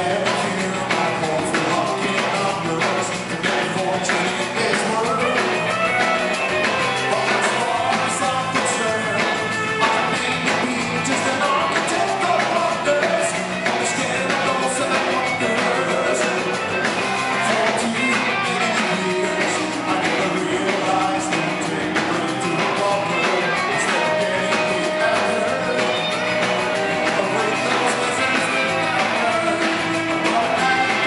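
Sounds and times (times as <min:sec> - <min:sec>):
live rock band playing: 0:00.0 - 0:31.0
person singing lead vocal: 0:00.0 - 0:31.0.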